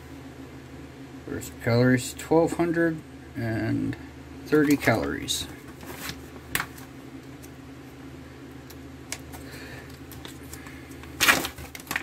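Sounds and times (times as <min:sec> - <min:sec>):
steady low hum: 0:00.0 - 0:12.0
sharp plastic crackle: 0:08.6 - 0:12.0
plastic bag rustling: 0:09.4 - 0:12.0.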